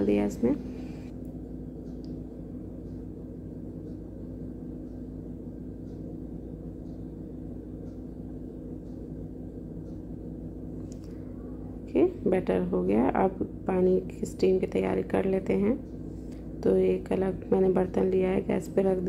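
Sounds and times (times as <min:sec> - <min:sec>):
steady low hum: 0:00.0 - 0:19.0
faint light ticks: 0:01.8 - 0:02.2, 0:05.8 - 0:06.1, 0:07.8 - 0:09.1.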